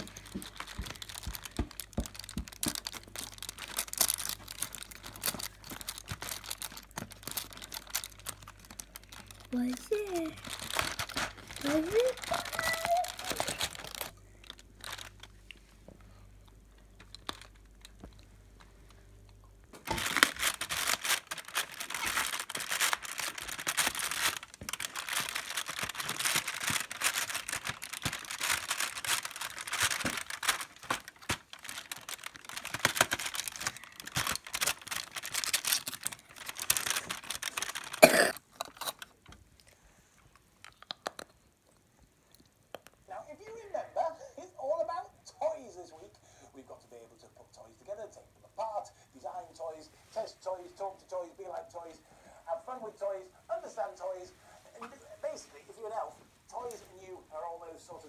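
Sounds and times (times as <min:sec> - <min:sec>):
cardboard crinkling and tearing: 0:00.0 - 0:15.4, 0:19.8 - 0:39.1.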